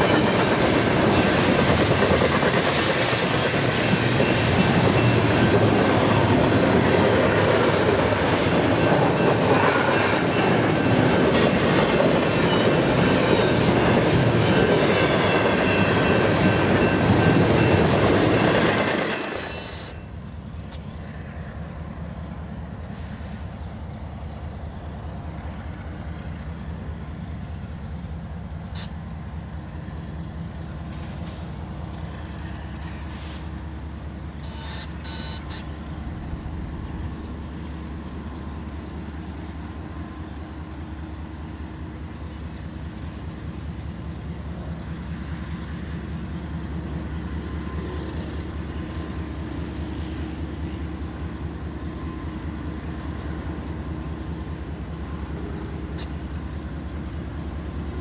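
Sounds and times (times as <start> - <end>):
locomotive diesel rumble: 20.1 - 58.0.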